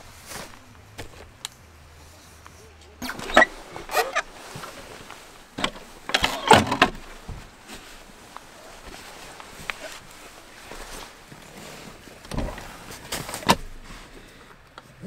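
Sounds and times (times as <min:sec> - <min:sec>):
nylon gear rustling and scraping: 0:02.1 - 0:14.1.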